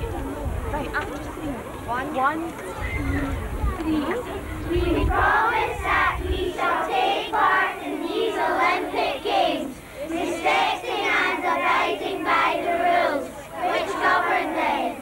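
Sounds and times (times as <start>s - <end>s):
children chanting together: 4.6s - 15.0s.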